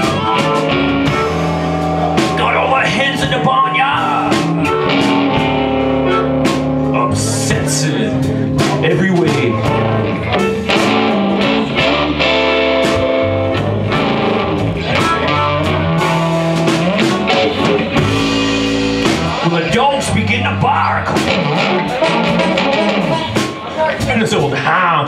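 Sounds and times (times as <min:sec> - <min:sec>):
amplified harmonica: 0:00.0 - 0:02.4, 0:03.0 - 0:06.9
electric guitar: 0:00.0 - 0:24.0
bass guitar: 0:00.0 - 0:25.0
drums: 0:00.0 - 0:25.0.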